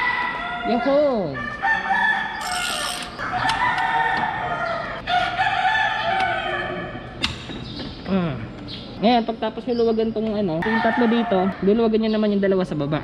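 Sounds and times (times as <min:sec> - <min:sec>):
roosters crowing: 0:00.0 - 0:07.2, 0:10.6 - 0:11.9.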